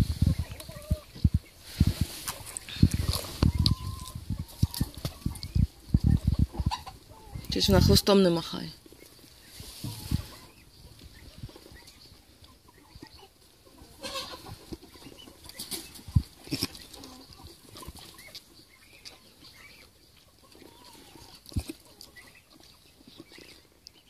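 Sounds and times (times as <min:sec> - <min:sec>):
chickens clucking: 0:00.0 - 0:24.0.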